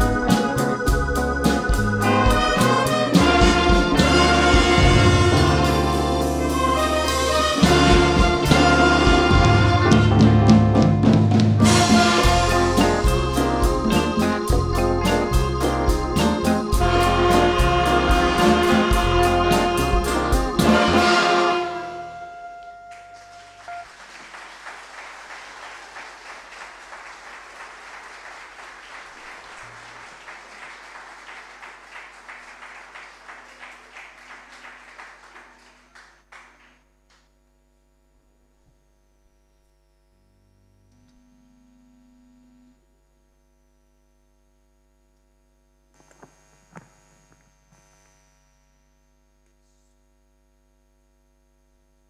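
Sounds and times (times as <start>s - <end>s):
wind band playing: 0.0s - 23.9s
faint hum: 21.8s - 52.0s
audience applause: 22.9s - 36.8s.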